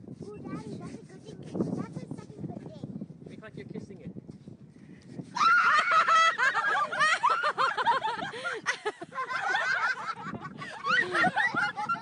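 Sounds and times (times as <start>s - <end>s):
high-pitched scream: 5.4s - 6.0s
people laughing: 5.6s - 12.0s.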